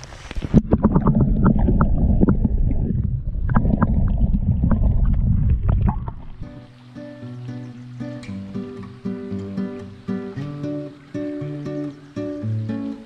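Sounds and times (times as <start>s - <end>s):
underwater stream rumble: 0.0s - 6.9s
underwater clicks and knocks: 0.3s - 6.6s.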